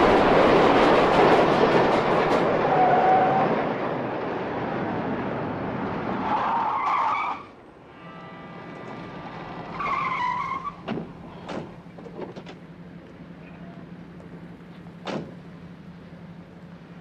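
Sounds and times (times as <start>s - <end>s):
elevated train rumbling: 0.0s - 17.0s
car tyres squealing: 2.6s - 3.6s, 6.1s - 7.6s, 8.8s - 11.8s
train squeal: 2.6s - 3.6s
sharp knocks: 15.0s - 15.4s.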